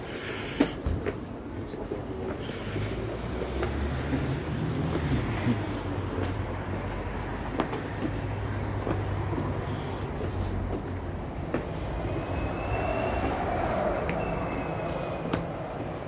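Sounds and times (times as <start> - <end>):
street traffic: 0.0 - 16.0
bus engine running: 1.5 - 16.0
high squeal: 11.8 - 16.0.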